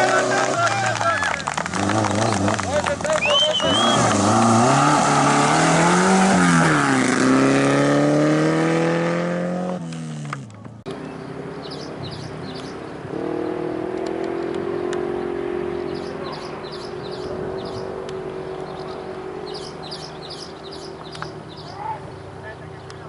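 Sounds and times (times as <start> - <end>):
off-road vehicle engine running hard: 0.0 - 23.0
small birds chirping: 10.8 - 23.0.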